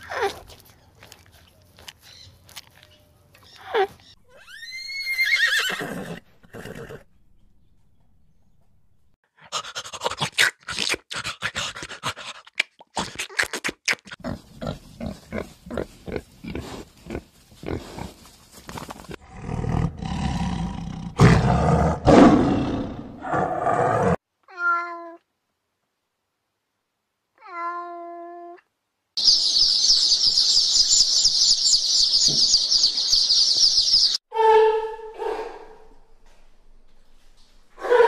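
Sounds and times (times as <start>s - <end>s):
pig chewing and snuffling: 0.0s - 4.1s, 9.6s - 19.2s
tiger roaring: 19.2s - 24.2s.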